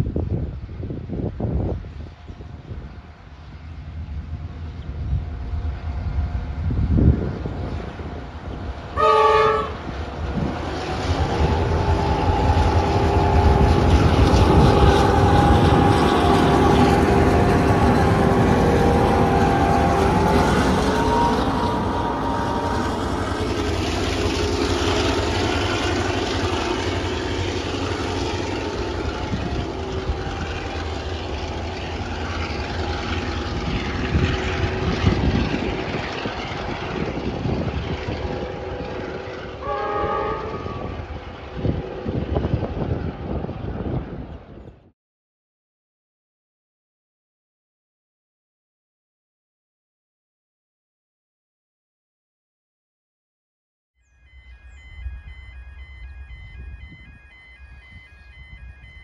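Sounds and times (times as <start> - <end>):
locomotive engines droning: 0.0 - 44.9, 54.1 - 59.0
wagons rumbling on rails: 0.0 - 44.9, 54.3 - 59.0
train horn blast: 8.9 - 42.6.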